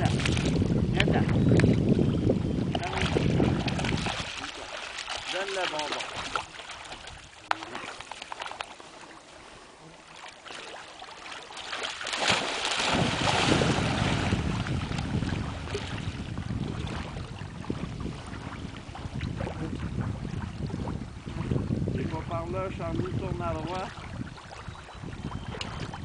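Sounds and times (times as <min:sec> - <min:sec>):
wind buffeting microphone: 0:00.0 - 0:07.4, 0:12.3 - 0:26.0
dog splashing in water: 0:02.8 - 0:08.7, 0:10.5 - 0:16.0.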